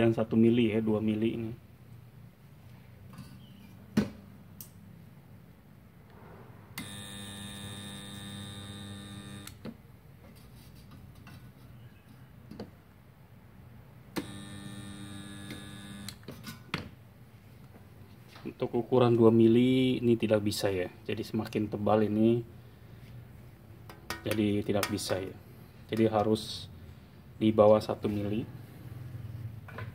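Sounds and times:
welder transformer humming: 6.8s - 9.6s, 14.1s - 16.3s.

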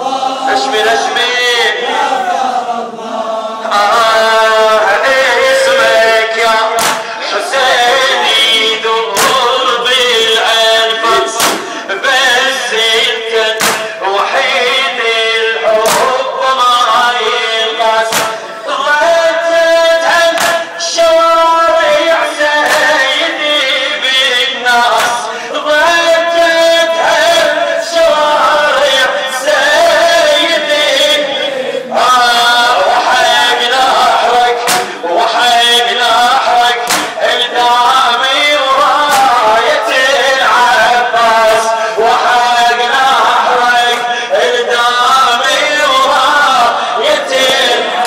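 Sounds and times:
men chanting a lament: 0.0s - 48.0s
chest-beating slaps: 6.8s - 7.1s, 9.2s - 9.4s, 11.3s - 11.8s, 13.6s - 14.0s, 15.8s - 16.2s, 18.1s - 18.4s, 20.3s - 20.7s, 22.6s - 23.0s, 24.9s - 25.2s, 34.6s - 35.0s, 36.8s - 37.2s, 39.1s - 39.4s.

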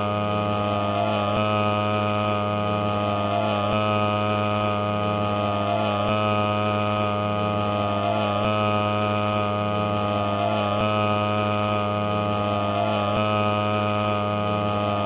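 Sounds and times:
droning hum of held tones: 0.0s - 15.0s.

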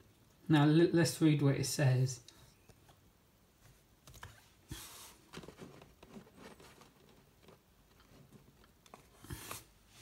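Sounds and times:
plastic case handling rustle: 4.1s - 9.7s.

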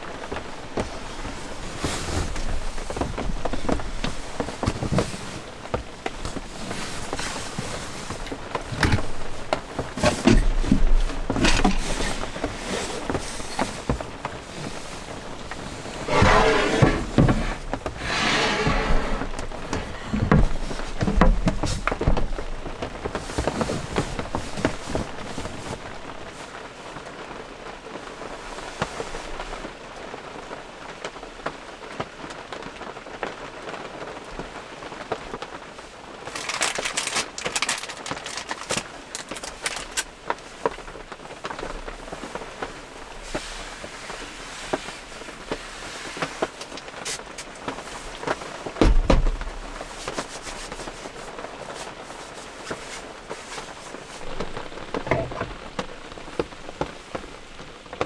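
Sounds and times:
rain pattering on camper roof: 0.0s - 58.0s
dull thump: 48.8s - 49.7s.

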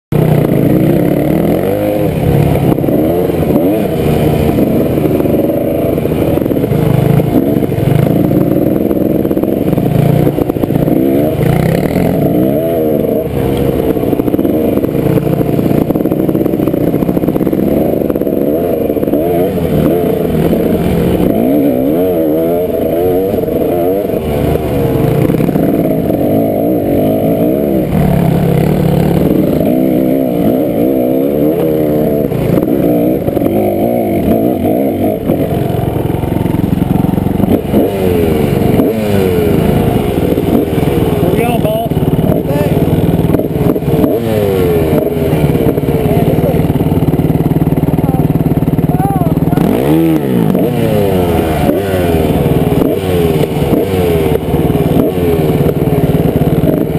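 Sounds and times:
dirt bike engine revving: 0.1s - 56.9s.

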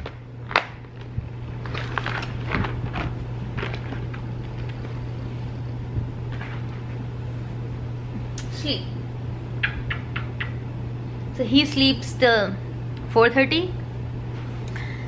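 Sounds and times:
steady low hum: 0.0s - 15.0s
plastic scraping and rustling: 0.5s - 5.0s.

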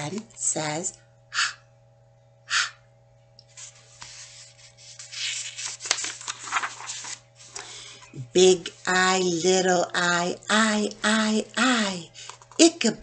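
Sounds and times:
breathy h sound: 1.3s - 1.6s, 2.5s - 2.8s
book pages rustling: 3.6s - 8.0s.

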